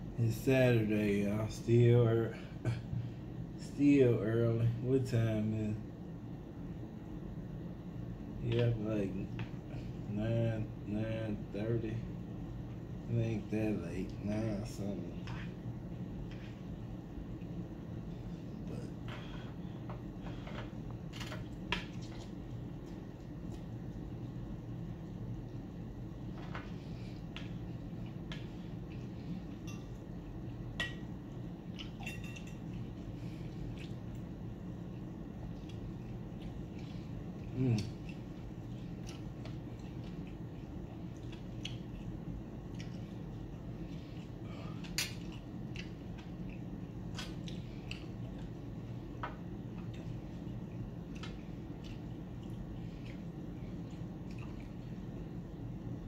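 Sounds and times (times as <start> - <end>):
low room hum: 0.0 - 56.0
wet chewing and mouth smacks: 32.6 - 34.3, 35.0 - 48.8, 49.7 - 55.2.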